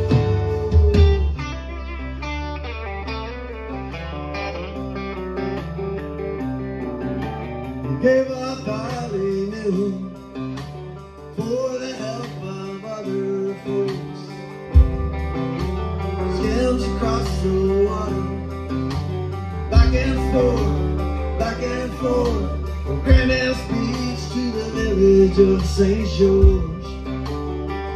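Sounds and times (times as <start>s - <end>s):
rock band playing: 0.0s - 27.9s
heavy low hits: 14.8s - 17.4s.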